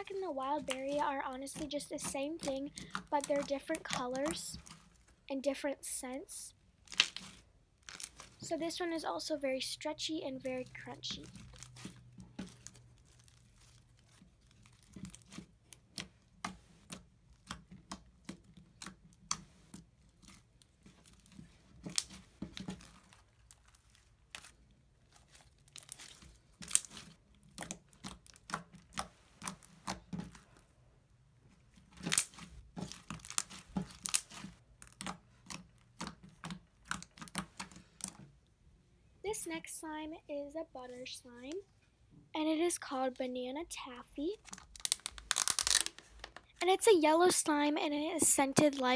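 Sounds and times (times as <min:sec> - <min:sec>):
slime crackling and popping: 0:00.0 - 0:05.2, 0:06.8 - 0:08.5, 0:10.6 - 0:30.4, 0:31.8 - 0:38.2, 0:44.4 - 0:46.2.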